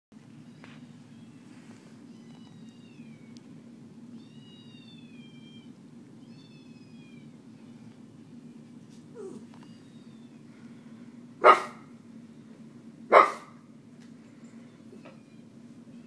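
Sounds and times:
cat meowing: 0:04.2 - 0:07.3.

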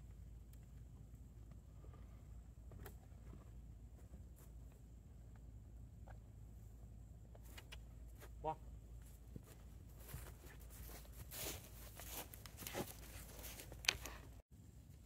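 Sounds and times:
rustling and scuffing: 0:07.3 - 0:14.4
horse hoofsteps on sandy dirt: 0:09.0 - 0:14.1.

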